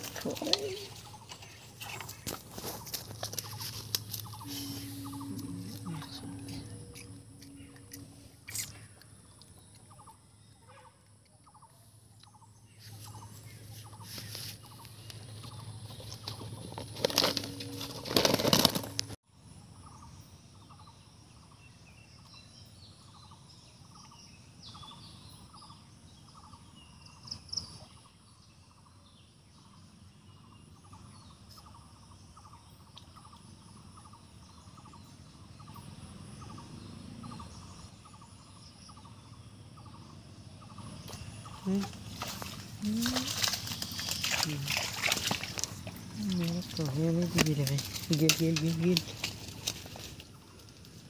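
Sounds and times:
close rustling and handling noise: 0.0 - 6.0, 12.8 - 19.2, 41.7 - 51.0
bird chirps: 0.0 - 16.8.

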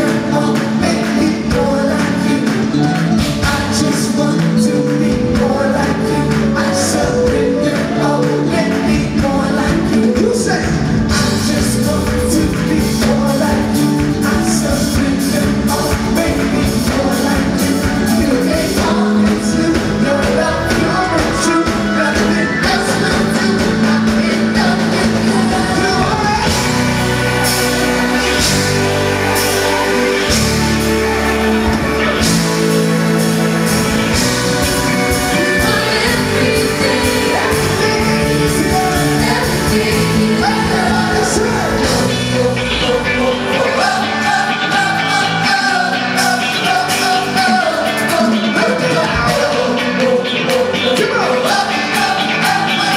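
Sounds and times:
amplified singing: 0.0 - 52.9
bass: 0.0 - 52.9
electric guitars: 0.0 - 52.9
organ: 0.0 - 52.9.

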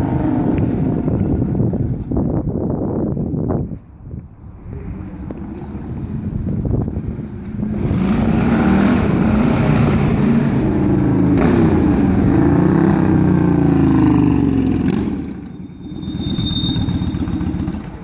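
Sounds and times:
motorcycle revving past: 7.6 - 18.0.

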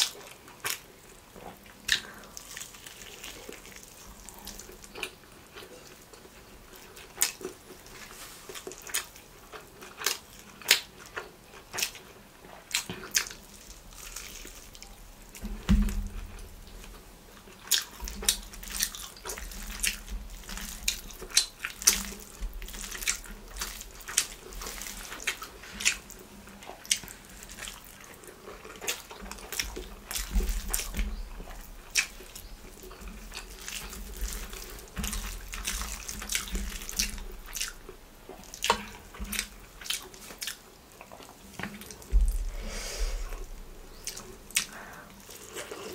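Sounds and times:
fingers tearing and squishing bread: 0.0 - 45.9
wet chewing and lip smacks: 0.0 - 45.9
low thuds: 42.1 - 43.9.

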